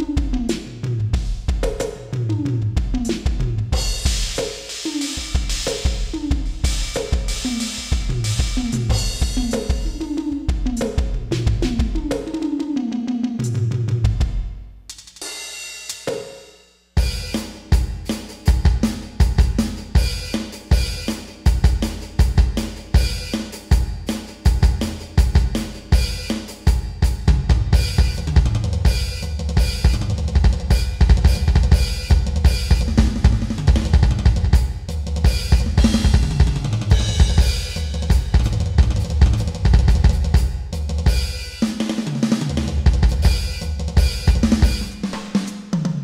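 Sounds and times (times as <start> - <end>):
backing song with bass line: 0.0 - 14.4, 27.2 - 40.7
electronic drum kit groove: 0.0 - 16.4, 17.0 - 46.0.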